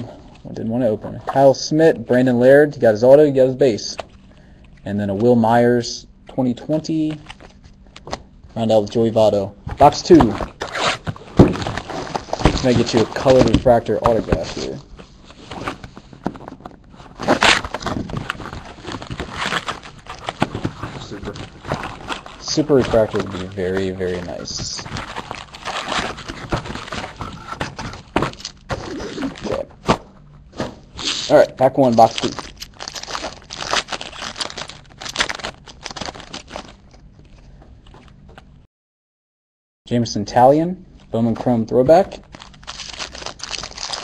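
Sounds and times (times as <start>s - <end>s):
cardboard and plastic wrap crinkling: 9.8s - 30.0s, 31.0s - 37.4s, 41.9s - 44.0s.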